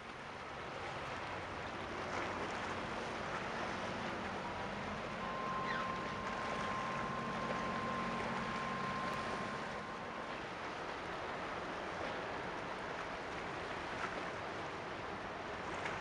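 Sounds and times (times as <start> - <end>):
wind and water hiss: 0.0 - 16.0
ship engine drone: 0.7 - 16.0
steady high tone: 3.9 - 10.9.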